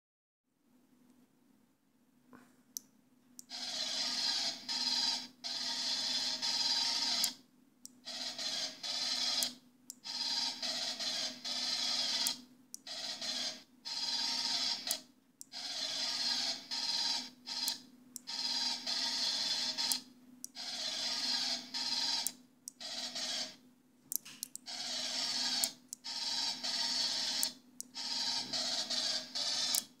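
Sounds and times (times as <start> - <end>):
rifle rapid fire sound effects: 3.5 - 7.3, 8.1 - 15.0, 15.6 - 23.6, 24.7 - 30.0.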